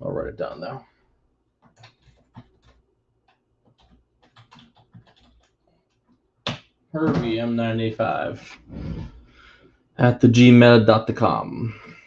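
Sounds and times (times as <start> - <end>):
computer keyboard typing: 1.6 - 6.7.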